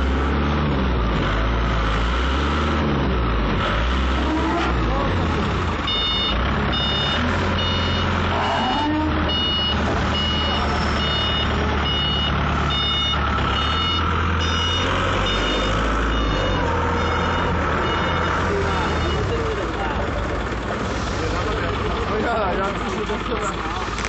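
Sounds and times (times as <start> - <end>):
forklift engine running: 0.0 - 24.0
back-up alarm beeping: 5.8 - 19.5.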